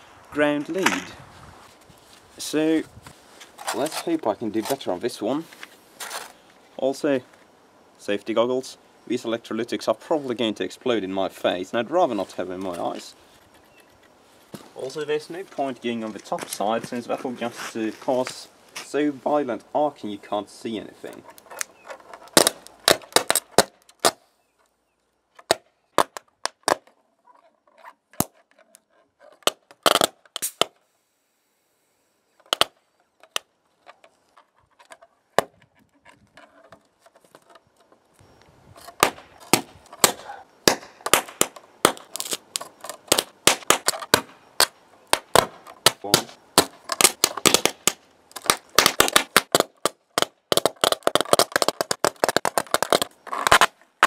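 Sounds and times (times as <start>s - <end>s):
electric arcing snaps and crackle: 39.0s - 53.8s.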